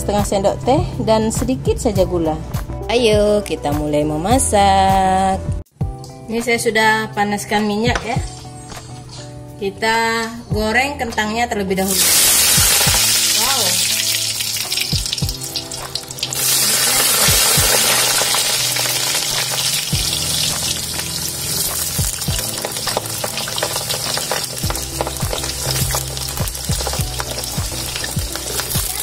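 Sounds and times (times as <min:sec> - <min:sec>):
potato slices sizzling in oil: 0:11.9 - 0:29.0
oil crackling pops: 0:12.0 - 0:29.0.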